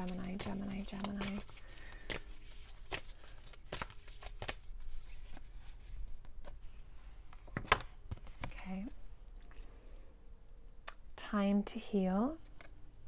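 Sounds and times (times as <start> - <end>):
cards being shuffled by hand: 0.0 - 6.6, 7.3 - 8.9.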